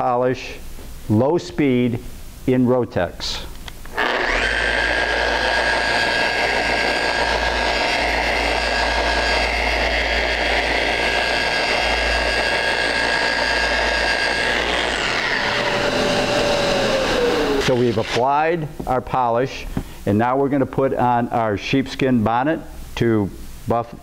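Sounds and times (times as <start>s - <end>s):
sander motor whine: 3.9s - 18.2s.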